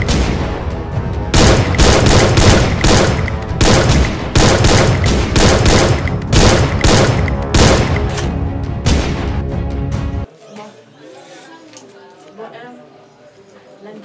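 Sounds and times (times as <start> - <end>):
automatic gunfire bursts: 1.4 - 8.1.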